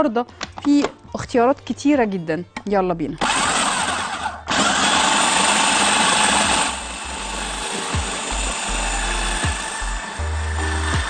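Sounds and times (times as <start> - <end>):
food processor blade whizzing: 3.2 - 11.0.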